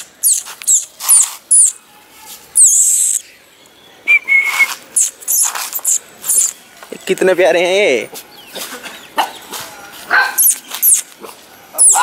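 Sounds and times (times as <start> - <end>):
puppies squeaking and whimpering: 0.2 - 1.8, 2.6 - 3.2, 5.0 - 6.6, 10.4 - 11.1, 11.8 - 12.0.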